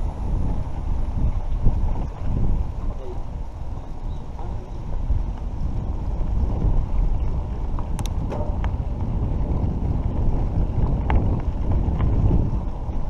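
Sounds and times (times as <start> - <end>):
bike tyres rumbling on dirt: 0.0 - 13.0
wind buffeting microphone: 0.0 - 13.0
bike clicks and rattles: 3.3 - 13.0.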